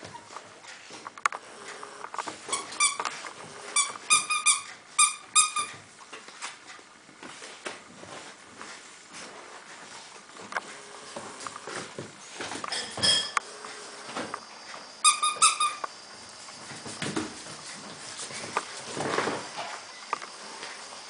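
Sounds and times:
puppies scuffling on tile floor: 0:00.0 - 0:21.0
squeaky dog toy: 0:02.5 - 0:03.0, 0:03.8 - 0:05.8, 0:15.0 - 0:15.8.

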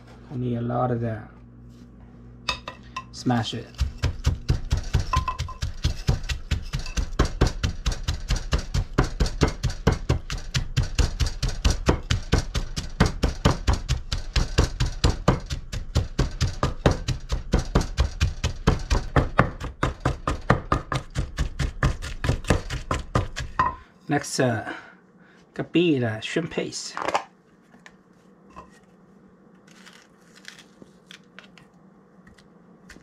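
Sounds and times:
wooden pestle pounding in mortar: 0:03.2 - 0:23.8.

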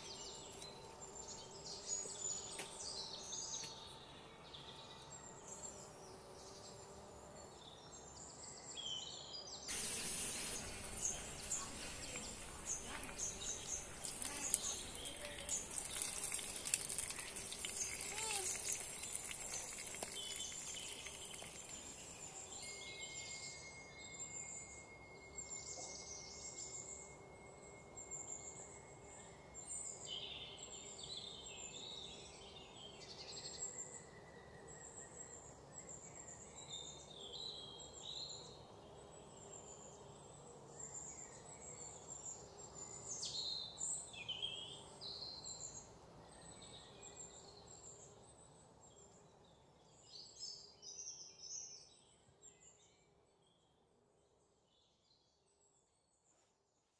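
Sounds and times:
tomatoes frying in oil: 0:09.7 - 0:22.0
birds chirping: 0:09.7 - 0:23.4.

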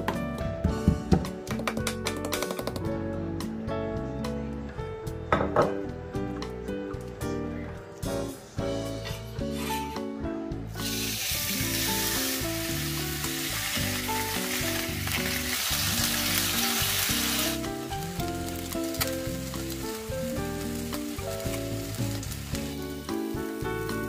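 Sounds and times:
background music: 0:00.0 - 0:24.0
steak sizzling on grill pan: 0:10.8 - 0:24.0.

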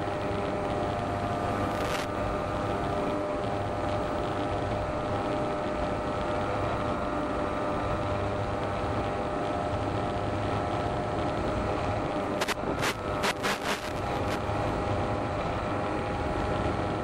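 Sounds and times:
model airplane motor whine: 0:00.0 - 0:17.0
rushing air noise: 0:11.8 - 0:14.9.

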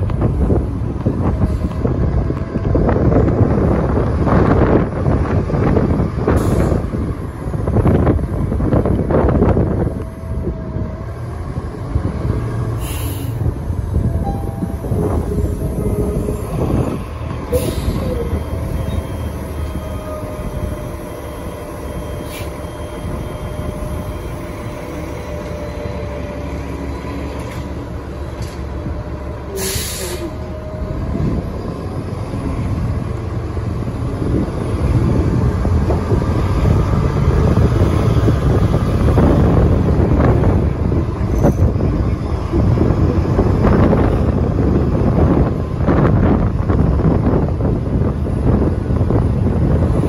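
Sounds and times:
bus drive whine: 0:00.0 - 0:50.0
low road rumble: 0:00.0 - 0:50.0.

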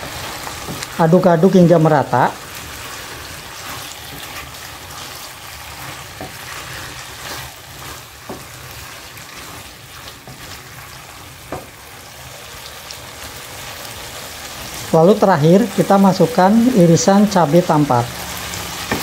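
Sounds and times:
food sizzling in a wok: 0:00.0 - 0:19.0
spatula stirring and scraping: 0:00.0 - 0:19.0
spatula knocking against pan: 0:11.5 - 0:11.7.

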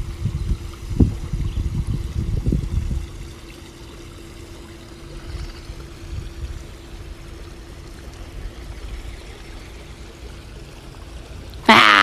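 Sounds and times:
faint steady hum: 0:00.0 - 0:12.0
water trickling over pool edge: 0:00.0 - 0:12.0.

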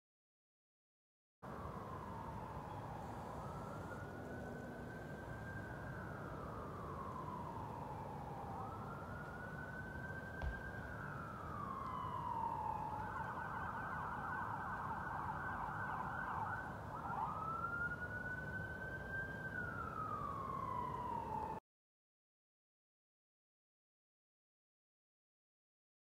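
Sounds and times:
emergency vehicle siren wailing: 0:01.4 - 0:21.6.

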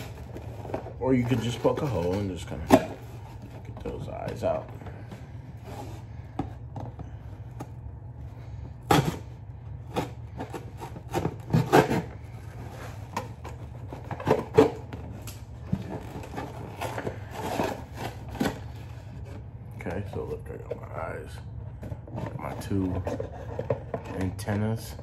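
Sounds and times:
steady low hum: 0:00.0 - 0:25.0
scissors cutting cardboard: 0:09.9 - 0:12.1.

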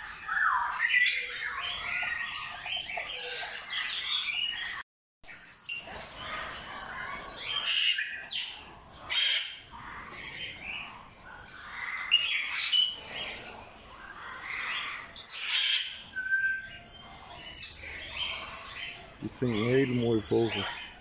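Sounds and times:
parrots squawking: 0:00.0 - 0:04.8, 0:05.8 - 0:21.0
parrot whistled calls: 0:15.3 - 0:16.9.

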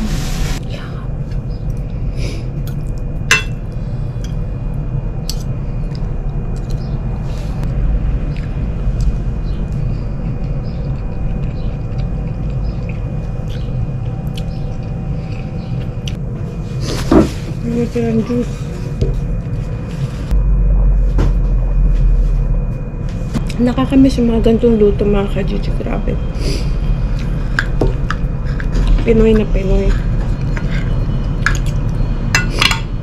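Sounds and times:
low background hum: 0:00.0 - 0:33.0
cutlery clinking against a plate: 0:03.3 - 0:03.6, 0:32.4 - 0:32.9.

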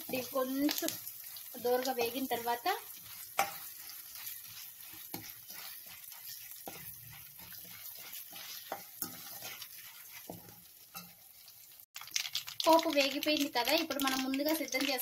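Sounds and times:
spatula scraping a pan: 0:00.0 - 0:11.9
spices sizzling in hot oil: 0:00.0 - 0:15.0.

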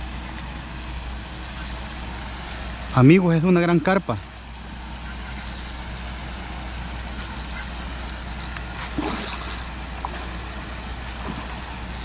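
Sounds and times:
low background rumble: 0:00.0 - 0:12.0
fish splashing in water: 0:05.3 - 0:12.0.

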